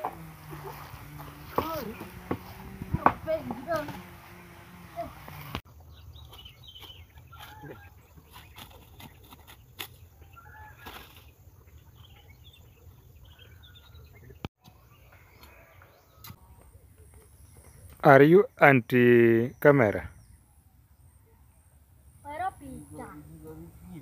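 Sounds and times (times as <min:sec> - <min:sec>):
bird calls and chirps: 0:05.7 - 0:21.8.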